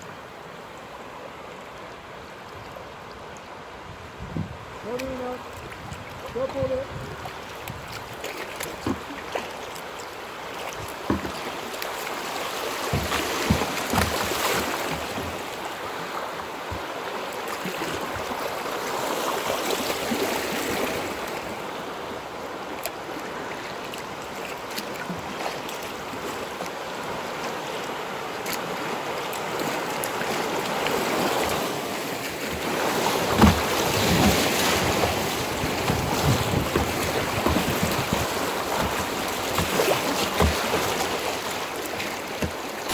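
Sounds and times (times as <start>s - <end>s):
river water splashing against hull: 0.0s - 42.9s
sharp splashes: 10.5s - 21.5s, 29.3s - 42.9s.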